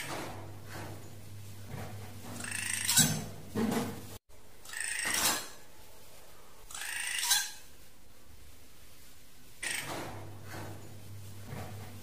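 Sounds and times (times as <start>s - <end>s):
harsh raspy bird calls: 6.7s - 7.6s.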